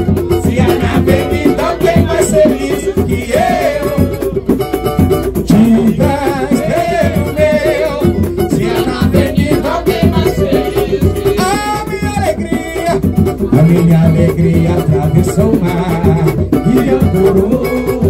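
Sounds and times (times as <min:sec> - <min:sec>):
samba percussion rhythm: 0:00.0 - 0:18.0
strummed small guitar: 0:00.0 - 0:18.0
voices singing wordless melody: 0:00.0 - 0:18.0.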